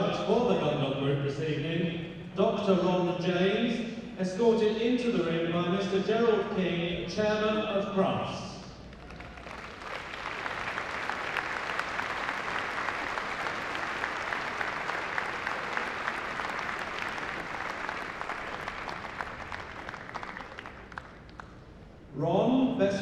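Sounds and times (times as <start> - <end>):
audience applauding: 8.9 - 21.8.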